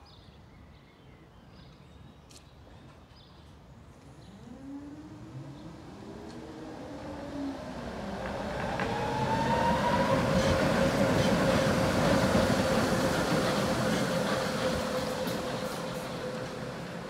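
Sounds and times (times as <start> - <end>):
tram motors whining: 4.0 - 17.0
wheels rumbling on rails: 4.0 - 17.0.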